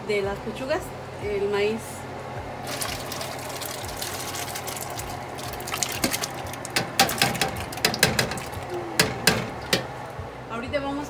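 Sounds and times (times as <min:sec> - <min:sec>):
watery hiss of pouring: 0:02.6 - 0:06.8
knocks and splashes into pot: 0:02.6 - 0:10.0.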